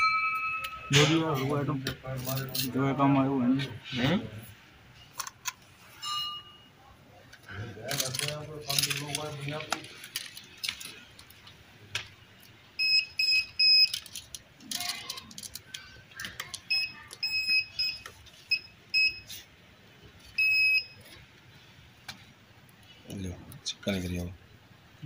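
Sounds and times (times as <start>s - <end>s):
metal detector beeping: 12.8s - 14.0s, 16.7s - 19.3s, 20.4s - 21.0s.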